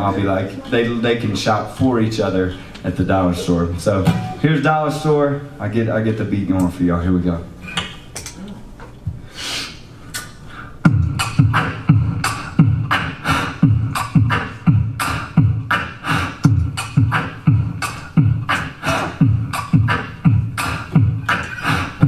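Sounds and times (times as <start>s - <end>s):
breathy hisses: 9.2s - 9.8s
beatboxed drum beat: 9.2s - 22.0s.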